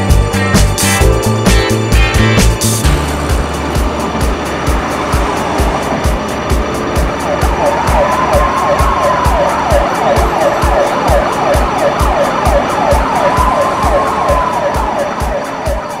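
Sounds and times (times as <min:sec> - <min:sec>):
background music with steady beat: 0:00.0 - 0:16.0
siren yelping and wailing: 0:07.2 - 0:16.0.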